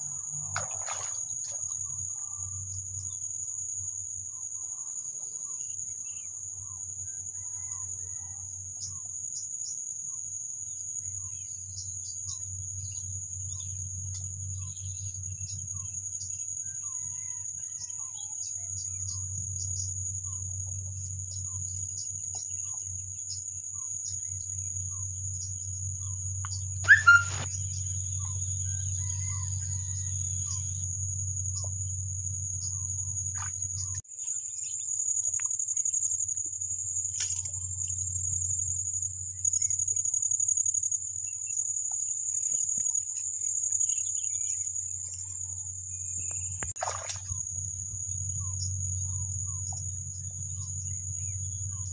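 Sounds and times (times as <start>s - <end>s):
insects droning: 0.0s - 51.9s
low rumble: 46.5s - 51.9s.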